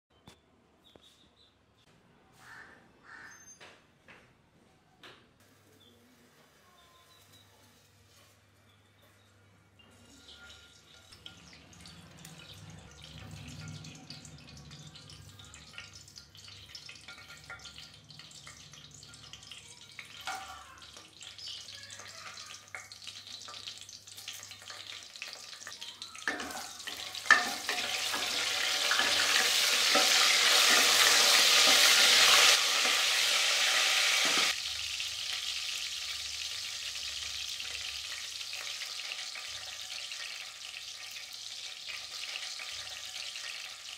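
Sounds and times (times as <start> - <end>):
spices sizzling in hot oil: 9.8 - 43.9.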